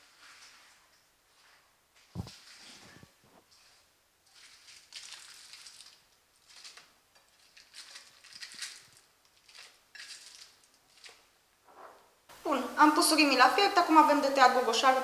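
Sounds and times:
plastic wrapper crinkling: 4.7 - 11.2.

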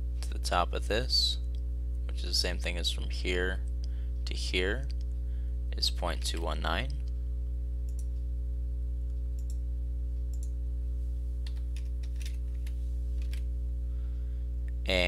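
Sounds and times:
steady low hum: 0.0 - 15.0
computer mouse clicks: 9.4 - 9.6, 10.3 - 10.5
keyboard keystrokes: 11.4 - 12.4.

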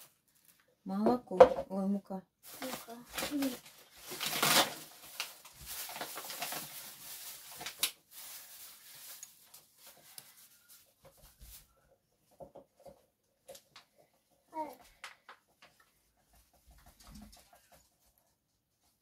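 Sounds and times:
plastic bag rustling: 0.0 - 0.8, 2.4 - 11.8.

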